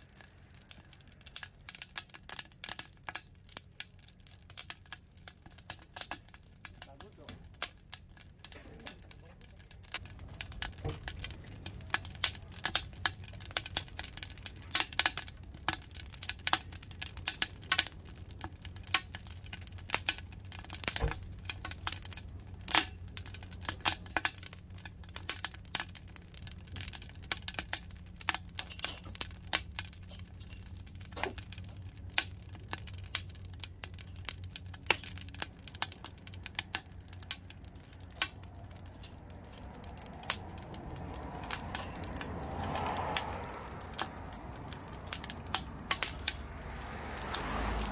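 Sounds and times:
low steady hum: 0.0 - 42.7
firewood crackling: 0.0 - 47.9.

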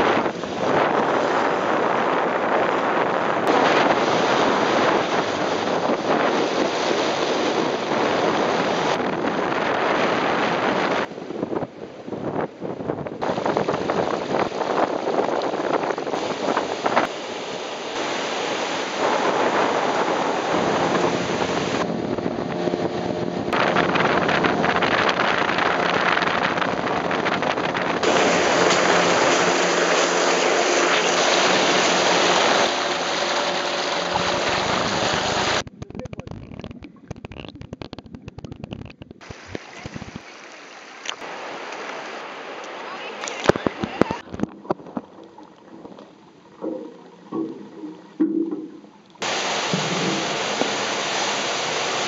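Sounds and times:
water rushing over reef: 0.0 - 11.1, 13.2 - 52.0
surf: 0.0 - 12.5, 13.1 - 37.8, 38.6 - 52.0
wind buffeting microphone: 0.0 - 40.3.

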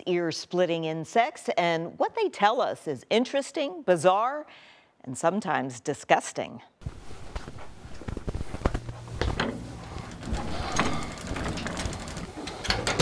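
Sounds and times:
metal cabinets clicking and knocking: 9.3 - 13.0.

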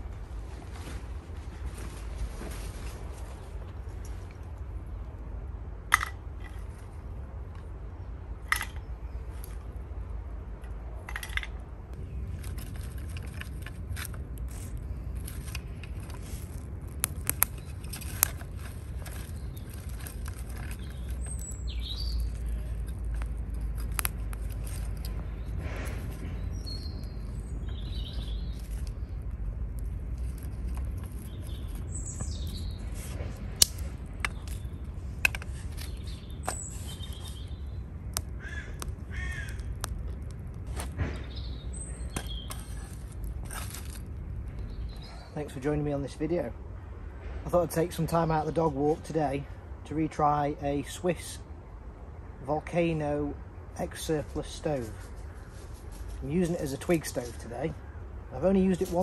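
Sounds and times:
low fire rumble: 0.0 - 59.0
fire crackling and snapping: 11.9 - 45.0
birds chirping: 14.5 - 46.9.

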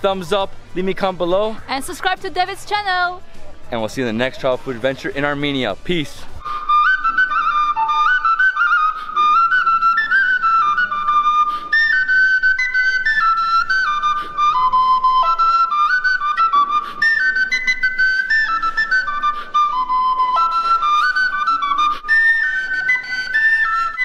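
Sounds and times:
wooden flute folk melody: 6.2 - 24.0.

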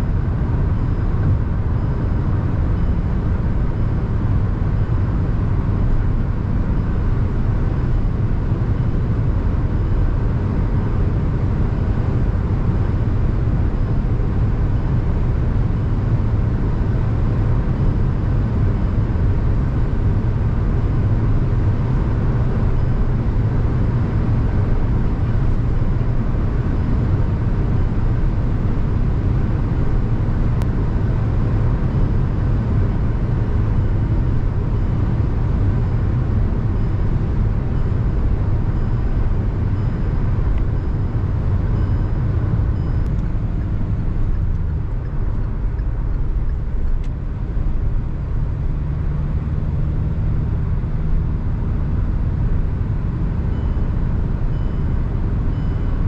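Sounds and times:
car engine droning: 0.0 - 56.0.

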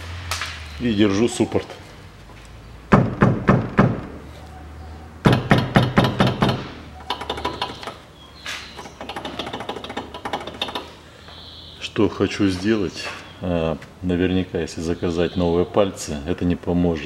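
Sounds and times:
hand knocking on car wheel: 5.3 - 6.6
brake caliper clicking and clatter: 5.3 - 8.0, 8.6 - 11.0.

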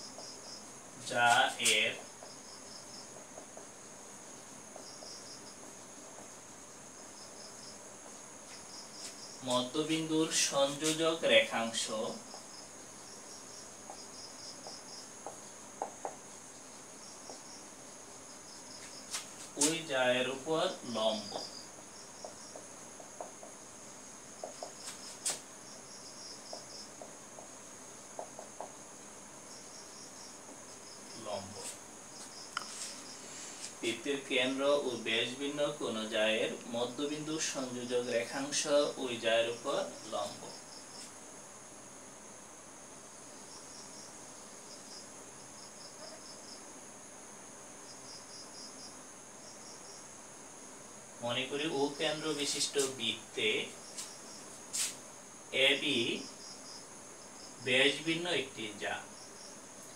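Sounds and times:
crickets chirping: 0.0 - 59.9
steady high hiss: 0.0 - 59.9
marker writing on whiteboard: 24.4 - 25.4.

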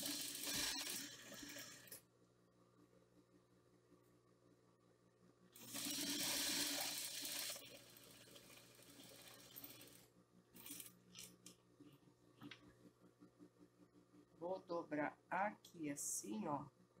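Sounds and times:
sewing machine stitching: 0.0 - 1.9.

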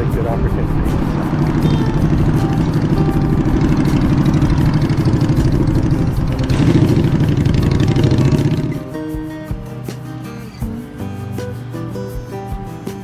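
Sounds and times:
engine running loudly: 0.0 - 8.9.

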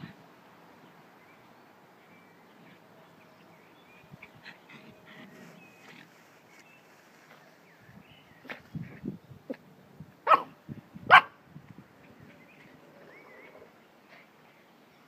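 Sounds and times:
puppies barking: 10.3 - 11.4.

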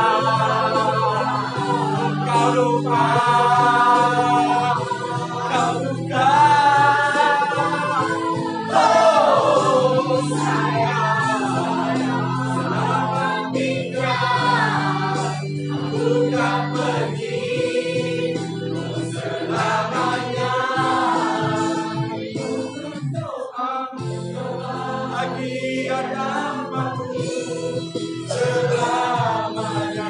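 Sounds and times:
held bass notes: 0.0 - 22.5
group vocals singing: 0.0 - 30.0.

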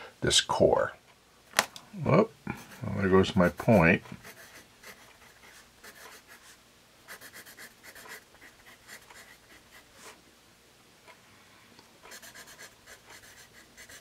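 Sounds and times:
pencil scratching on paper: 2.6 - 10.2, 12.1 - 14.0.

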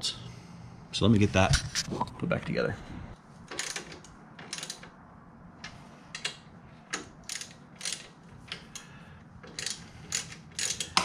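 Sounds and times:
ratchet wrench clicking: 7.0 - 8.0, 9.5 - 11.0.

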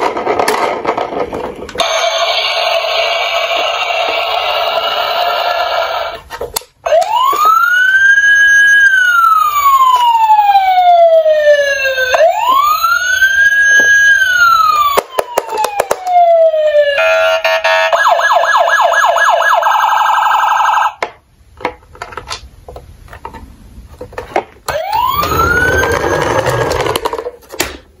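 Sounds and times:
toy siren wailing and yelping: 6.9 - 20.9, 24.7 - 27.0.

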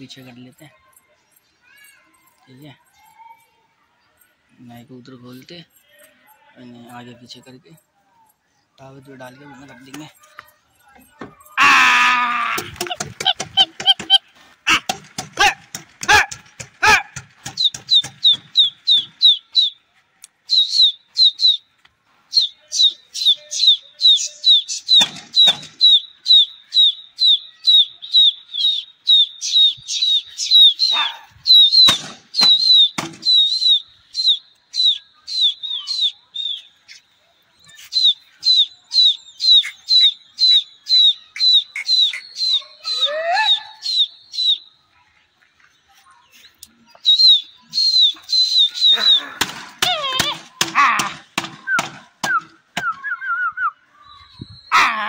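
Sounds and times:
bird chirping: 12.5 - 55.0.

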